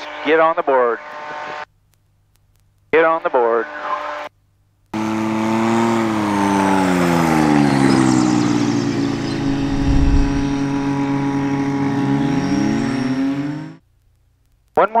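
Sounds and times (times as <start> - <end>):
plane engine and propeller: 5.0 - 13.8.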